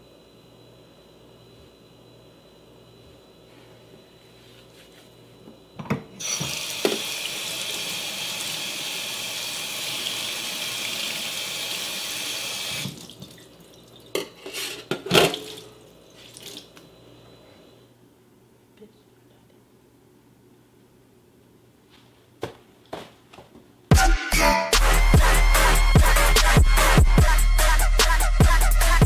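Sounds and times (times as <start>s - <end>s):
tap water running: 6.2s - 14.4s, 15.2s - 16.8s.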